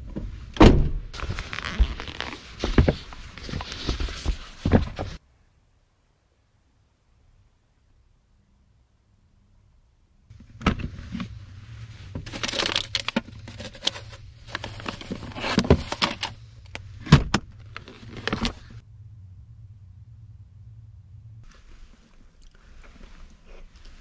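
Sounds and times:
low steady hum: 0:05.2 - 0:24.0
plastic rustling: 0:12.2 - 0:16.4.

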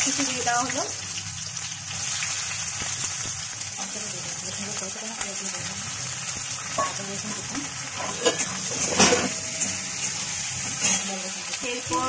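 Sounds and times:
onions sizzling in oil: 0:00.0 - 0:12.0
metal spatula scraping pan: 0:06.7 - 0:11.3.

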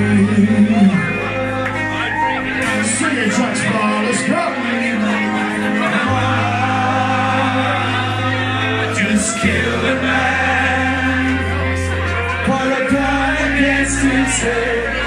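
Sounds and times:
live band playing: 0:00.0 - 0:15.0
sustained bass notes: 0:00.0 - 0:15.0
person singing: 0:03.8 - 0:15.0.

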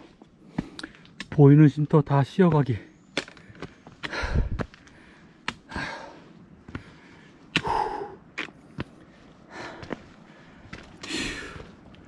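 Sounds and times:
person breathing hard: 0:00.0 - 0:01.2, 0:03.5 - 0:11.8
footsteps and taps: 0:00.2 - 0:01.6.

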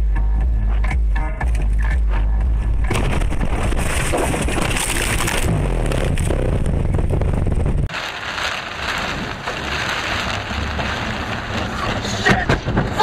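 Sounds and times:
car low rumble: 0:00.0 - 0:13.0
heavy rain and tyre spray: 0:03.3 - 0:13.0.

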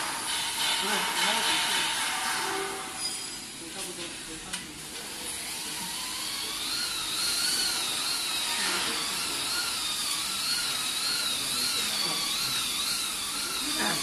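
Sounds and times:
workshop noise hiss: 0:00.0 - 0:14.0
power tool motor whining: 0:05.1 - 0:14.0.

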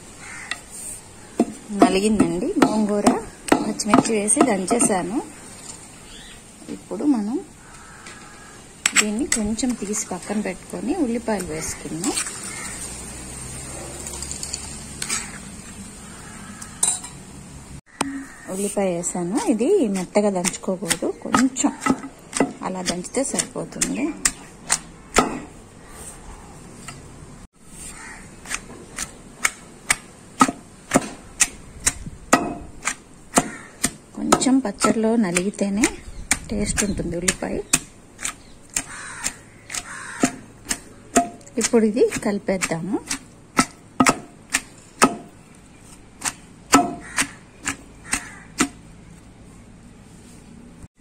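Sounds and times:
pestle pounding in stone mortar: 0:01.4 - 0:05.1, 0:19.9 - 0:25.5, 0:28.5 - 0:45.4, 0:46.2 - 0:48.8.

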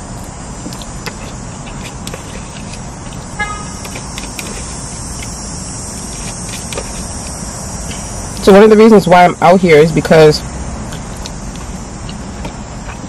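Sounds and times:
steady low rumble: 0:00.0 - 0:13.0
car horn toot: 0:03.4 - 0:04.5.

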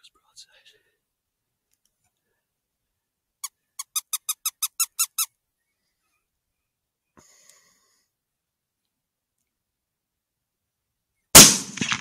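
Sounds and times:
predator call squeaks: 0:03.4 - 0:05.4.

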